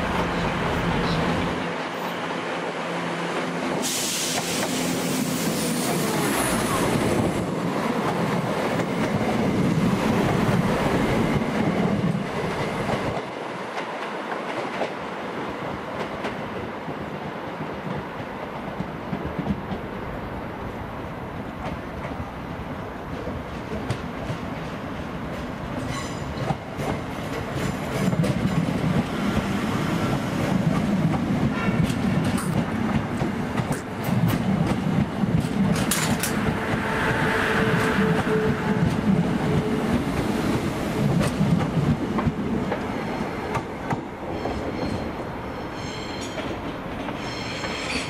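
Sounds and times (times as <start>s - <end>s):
train wheels clacking: 25.8s - 48.0s.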